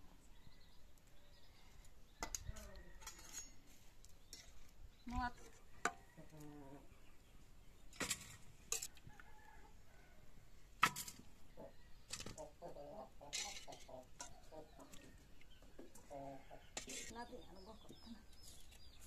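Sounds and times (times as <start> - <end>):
chickens clucking: 4.6 - 10.1, 11.2 - 19.0.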